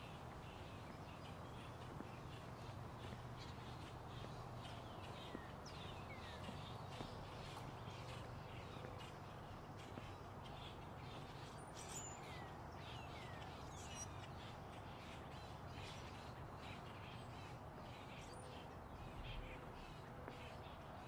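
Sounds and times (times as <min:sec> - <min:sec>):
birds chirping: 0:00.0 - 0:21.0
footsteps on concrete: 0:00.3 - 0:11.6.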